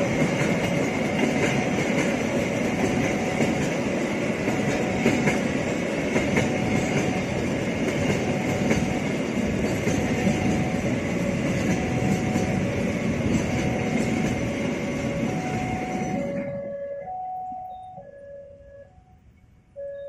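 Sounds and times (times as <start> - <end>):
steel wheels on rail: 0.0 - 18.1
two-note warning tone: 15.1 - 20.0.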